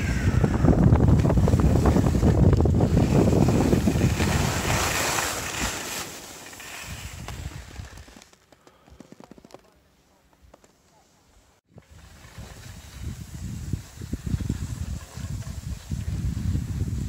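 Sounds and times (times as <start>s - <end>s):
wind buffeting microphone: 0.0s - 5.7s, 11.7s - 17.0s.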